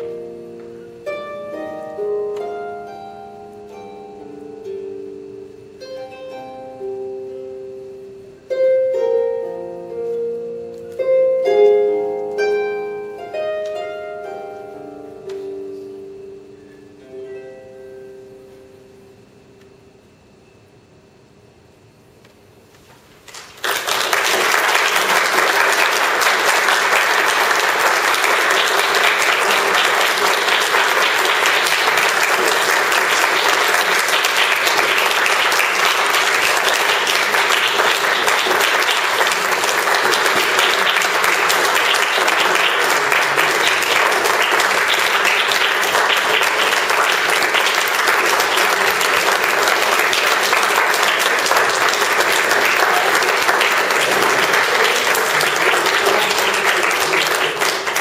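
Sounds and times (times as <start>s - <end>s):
audience applauding: 23.2s - 58.0s.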